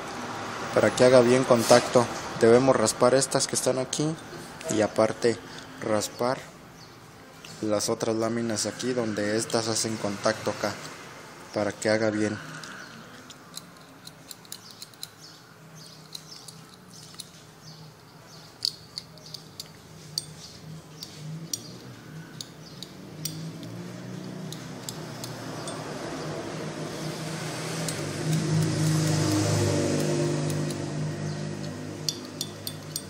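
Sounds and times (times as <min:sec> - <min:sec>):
small metallic clicks: 0:12.5 - 0:25.9, 0:27.7 - 0:33.0.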